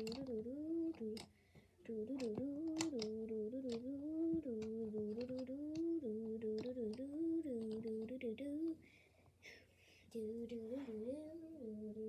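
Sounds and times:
colored pencils clicking: 0.0 - 8.8
girl humming a tune: 0.0 - 8.8, 10.1 - 12.0.

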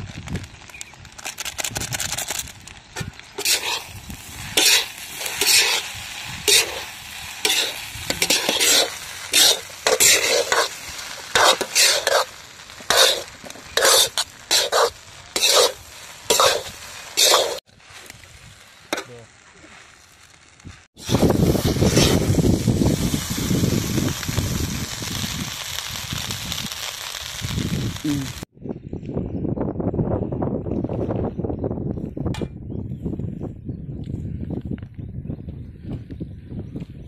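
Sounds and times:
steel spatula scraping rice in pan: 3.4 - 17.9, 21.8 - 22.2.

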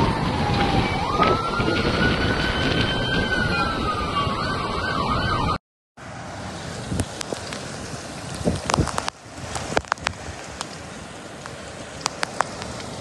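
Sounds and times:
rain falling on flooded street: 0.0 - 4.3, 6.0 - 13.0
emergency siren wailing: 0.0 - 5.6
wind and rain noise: 0.0 - 13.0.

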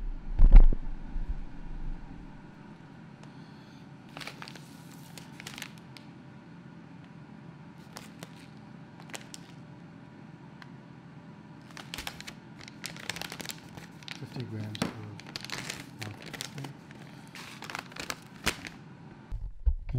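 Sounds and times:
steady low hum: 0.0 - 19.9
kitchen handling crinkles and clicks: 11.6 - 18.8.

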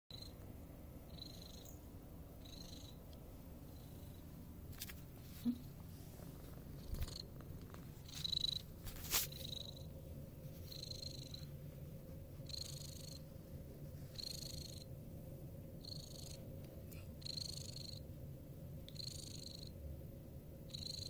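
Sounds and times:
cat purring: 0.1 - 19.9, 20.6 - 21.0.

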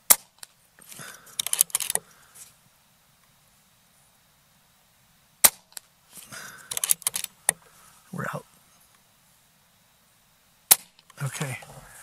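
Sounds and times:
metallic clicks and rattles: 1.3 - 2.0, 6.7 - 7.3
air rifle shot crack: 10.7 - 10.9.

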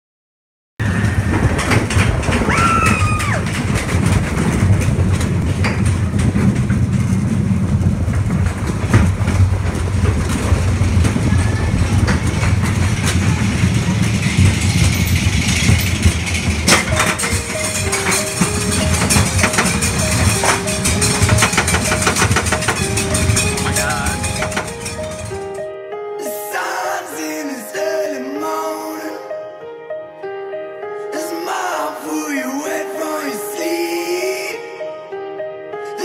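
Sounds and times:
roller coaster rumbling on track: 0.8 - 25.6.

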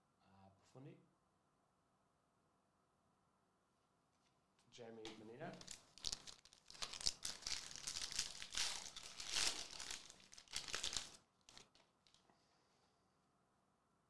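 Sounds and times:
foil wrapper crinkling: 5.5 - 12.2.

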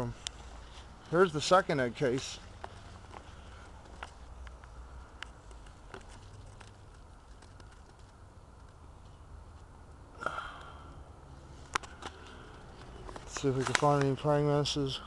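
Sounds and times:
leaves rustling against camera: 11.8 - 14.5.

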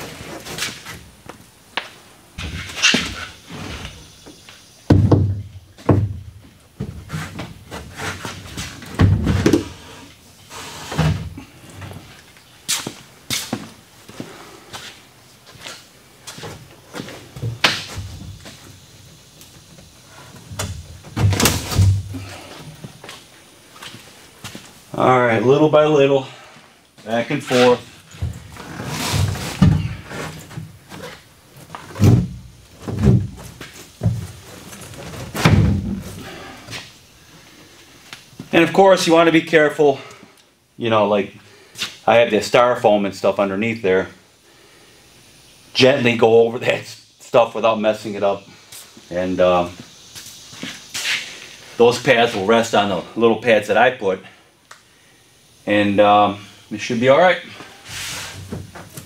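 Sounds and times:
dull thunks of tub: 4.9 - 7.9, 8.8 - 9.8, 31.9 - 34.4, 35.1 - 36.2
tub shell thumping wood framing: 4.9 - 9.8, 20.4 - 22.7, 28.1 - 36.4.

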